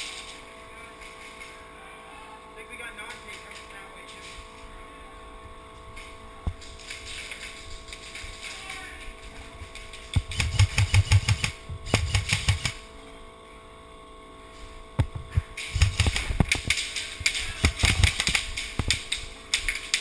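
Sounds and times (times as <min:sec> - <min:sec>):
steady hum: 0:00.0 - 0:20.0
airsoft guns firing: 0:10.0 - 0:12.8, 0:15.6 - 0:20.0.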